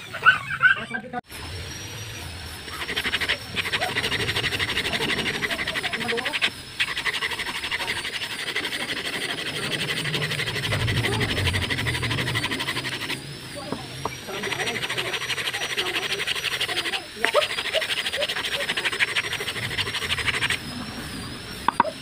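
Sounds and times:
sandpaper rasping on wood: 2.5s - 13.2s, 14.0s - 20.7s.

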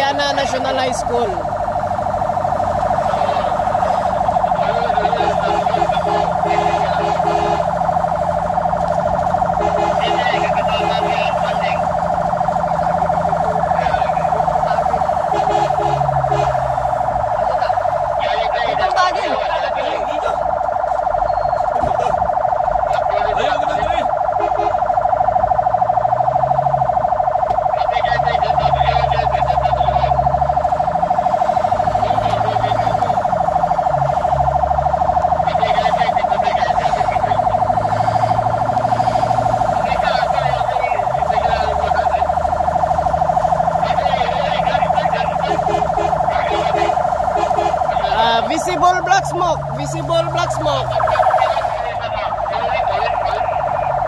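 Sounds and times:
fire engine siren: 0.0s - 54.0s
truck engine accelerating: 0.0s - 54.0s.

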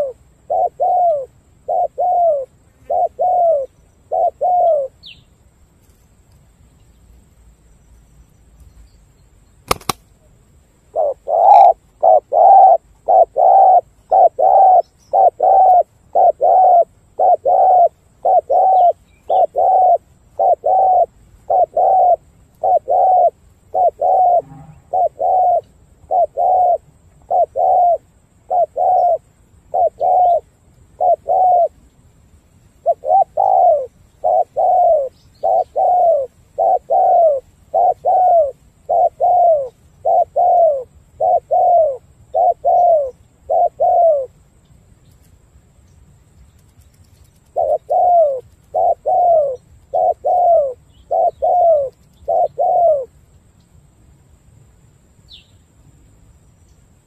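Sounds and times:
dove cooing: 0.0s - 5.2s, 10.9s - 31.8s, 32.8s - 44.4s, 47.5s - 53.2s.

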